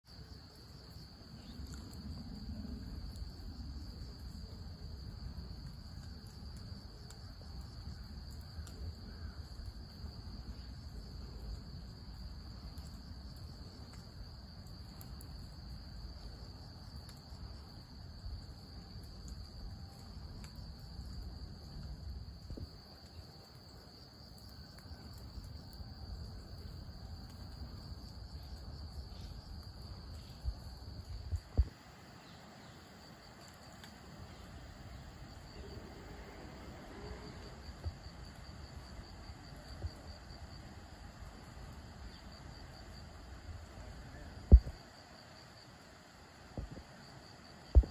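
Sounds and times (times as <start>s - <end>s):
insects droning: 0.0s - 47.9s
low outdoor rumble: 0.3s - 22.7s, 33.6s - 44.9s.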